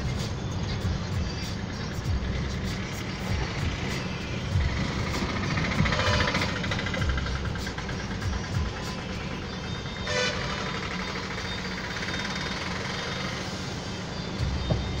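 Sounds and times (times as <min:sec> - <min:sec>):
road traffic noise: 0:00.0 - 0:15.0
vehicle horn toot: 0:05.8 - 0:06.8, 0:09.3 - 0:13.4.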